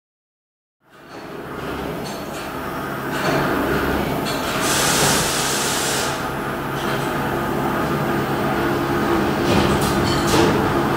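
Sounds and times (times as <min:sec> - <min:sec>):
machine steady mechanical hum: 0:00.8 - 0:10.9
hiss: 0:04.6 - 0:06.3.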